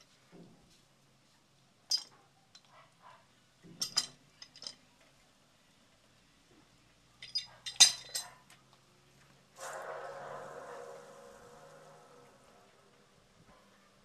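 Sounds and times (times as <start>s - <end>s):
metallic clinks on water pipe: 1.9s - 2.7s, 3.8s - 4.8s, 7.2s - 8.3s
steady buzz: 9.6s - 13.4s.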